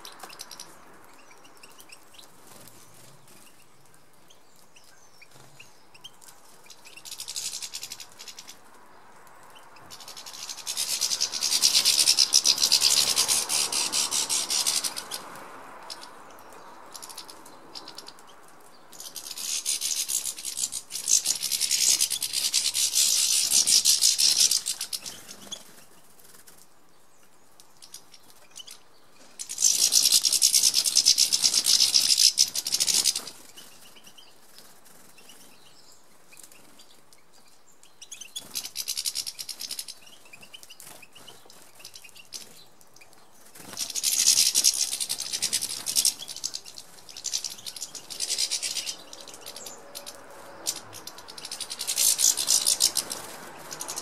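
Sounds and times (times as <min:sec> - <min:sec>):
finches twittering: 0:09.8 - 0:18.3, 0:38.0 - 0:54.0.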